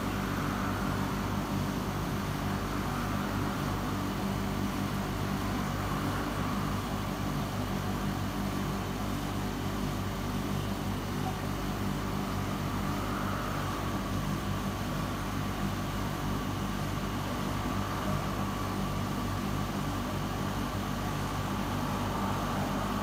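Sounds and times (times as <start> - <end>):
aquarium pumps humming: 0.0 - 23.0
faint steady whine: 0.0 - 23.0.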